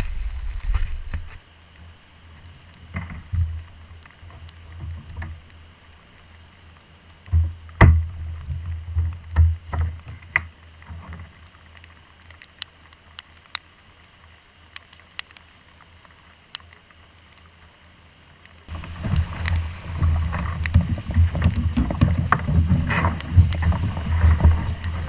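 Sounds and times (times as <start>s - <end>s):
steady low rumble: 18.7s - 25.0s.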